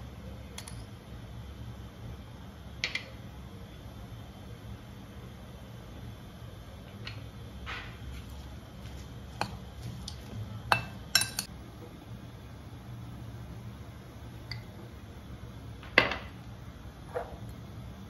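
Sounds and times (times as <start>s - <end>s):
metal spoon clinking on glass bowl: 10.7s - 11.5s.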